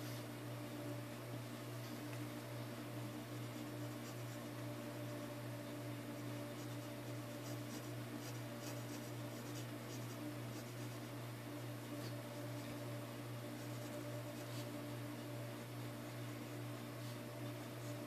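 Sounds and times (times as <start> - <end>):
low electrical hum: 0.0 - 18.0
pencil scratching on paper: 6.2 - 11.1, 13.5 - 14.8.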